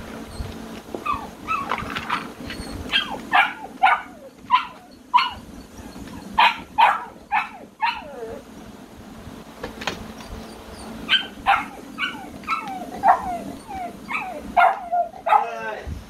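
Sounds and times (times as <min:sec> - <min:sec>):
puppy yapping: 0:00.3 - 0:08.4, 0:10.1 - 0:15.7.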